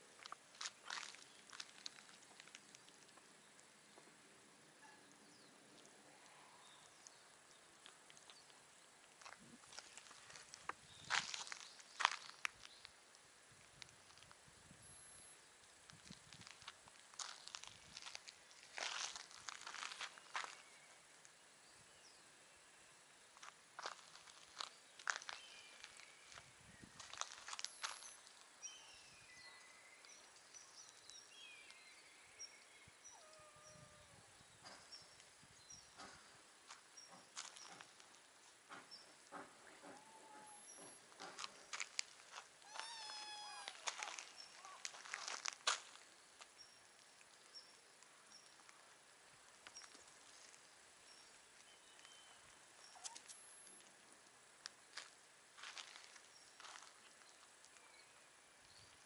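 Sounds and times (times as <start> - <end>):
footsteps on pavement: 0.2 - 2.6, 9.2 - 12.8, 16.2 - 20.6, 36.0 - 46.5, 54.9 - 57.5
small birds chirping: 0.2 - 9.1, 17.2 - 42.0, 42.6 - 54.0
faint high chirp: 27.6 - 36.0, 51.0 - 53.8, 57.7 - 59.0
cat meow: 33.1 - 34.4, 39.9 - 40.7, 42.6 - 44.8.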